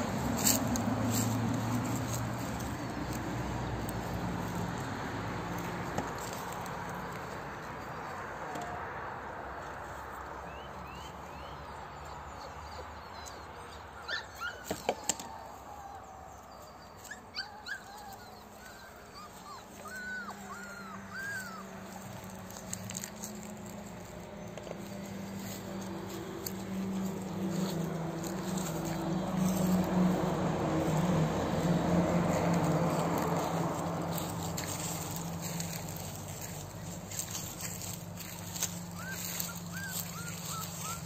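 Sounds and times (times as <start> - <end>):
puppy whining: 12.3 - 16.0, 16.6 - 23.4, 37.8 - 41.0
puppy yipping: 12.3 - 16.0, 16.6 - 23.2, 34.3 - 41.0.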